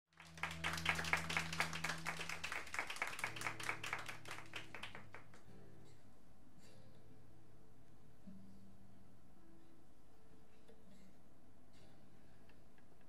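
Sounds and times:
audience clapping: 0.1 - 5.5.

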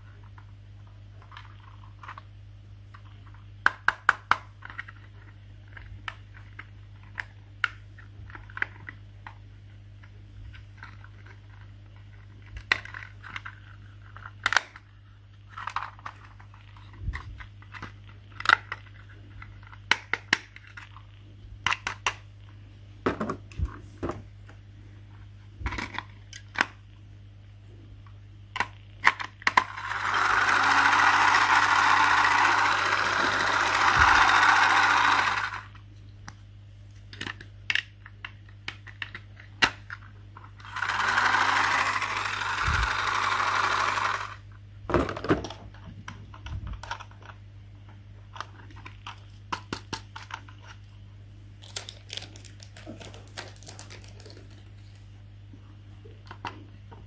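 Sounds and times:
small battery motor running: 29.6 - 35.8, 40.6 - 44.4.

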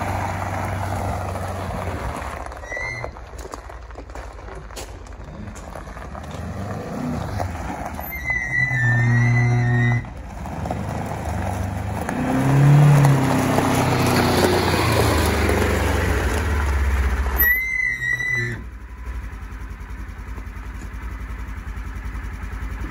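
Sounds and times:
vehicle engine running: 0.0 - 22.9.

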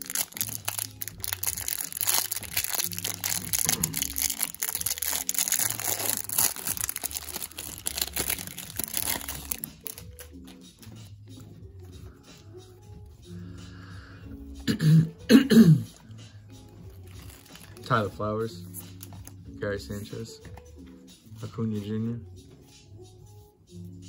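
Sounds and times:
plastic wrapper crinkling: 0.0 - 10.6, 16.9 - 18.1
background music with bass line: 0.0 - 24.0.

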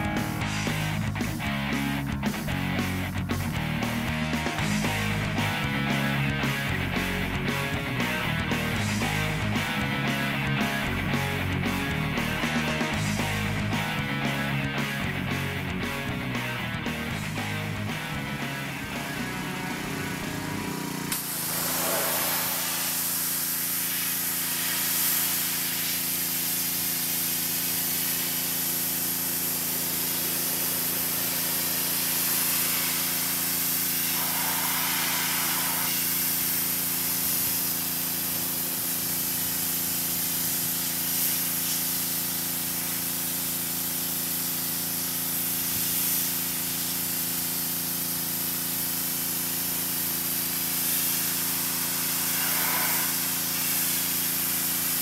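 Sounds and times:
pressure washer spraying water: 16.8 - 55.0.

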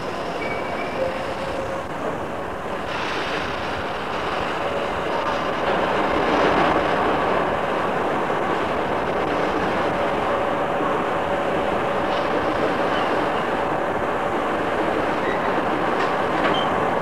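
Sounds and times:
electric train running rumble: 0.0 - 17.0.

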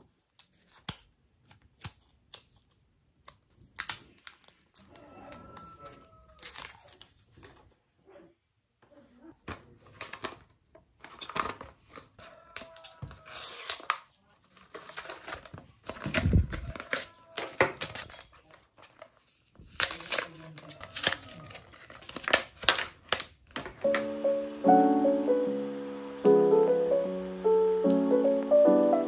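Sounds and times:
packaging tearing and crinkling: 0.2 - 5.5, 6.3 - 7.6, 11.0 - 24.0.

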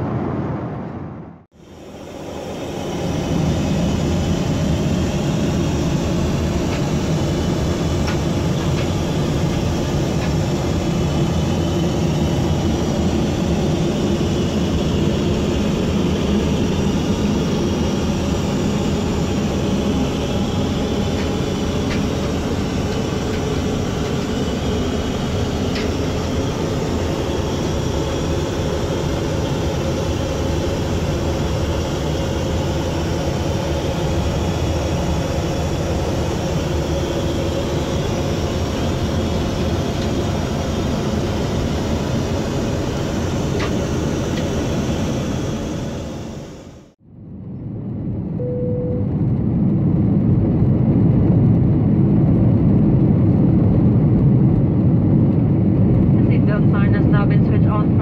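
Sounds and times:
airplane cabin engine hum: 0.0 - 58.0
faint high whine: 45.1 - 49.4.

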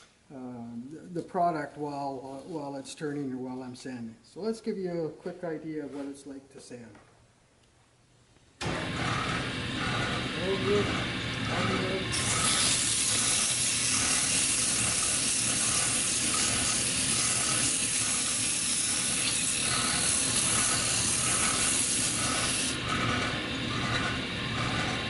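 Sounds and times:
wood lathe humming: 8.6 - 25.0
sandpaper hissing on spinning wood: 9.8 - 23.1.

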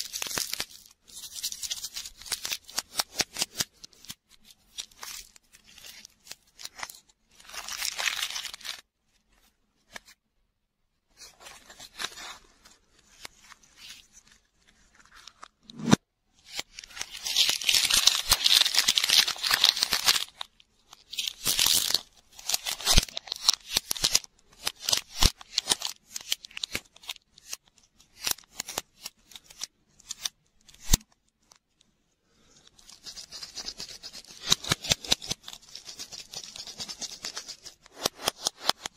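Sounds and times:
plastic wrapper tearing: 0.0 - 8.8, 15.1 - 31.1, 32.8 - 38.9.

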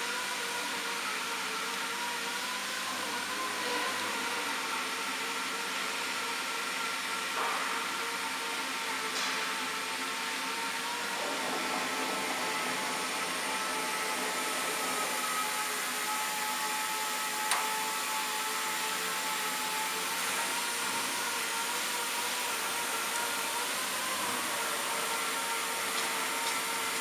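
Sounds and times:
router spindle whine and hiss: 0.0 - 27.0.

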